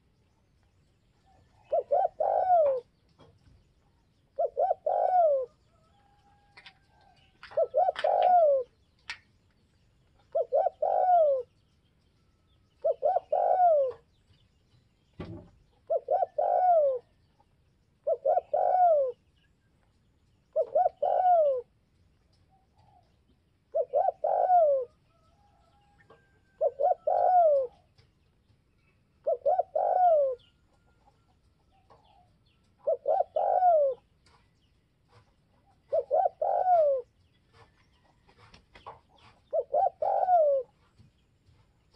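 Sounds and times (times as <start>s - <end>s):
dove cooing: 1.2s - 3.0s, 4.3s - 6.5s, 7.4s - 8.9s, 10.2s - 11.6s, 12.8s - 14.1s, 15.8s - 17.3s, 18.0s - 19.3s, 20.5s - 21.8s, 22.6s - 28.0s, 29.2s - 31.2s, 31.8s - 34.4s, 35.6s - 37.7s, 39.2s - 40.9s
low thump: 15.1s - 15.6s.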